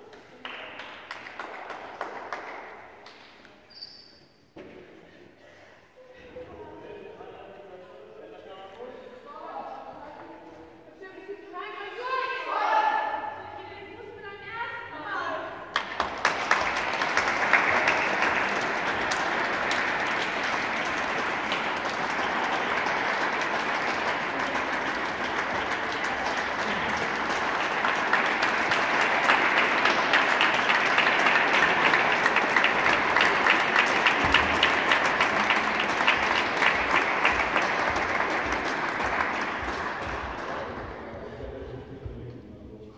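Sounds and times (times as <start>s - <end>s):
crowd clapping: 0.0s - 3.7s, 15.7s - 41.8s.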